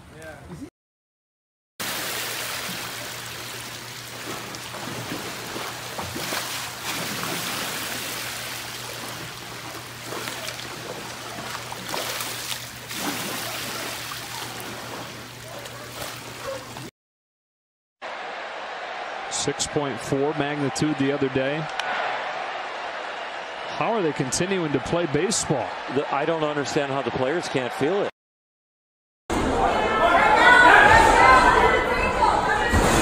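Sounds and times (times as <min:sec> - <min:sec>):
pool water sloshing and splashing: 0:01.8 - 0:16.9.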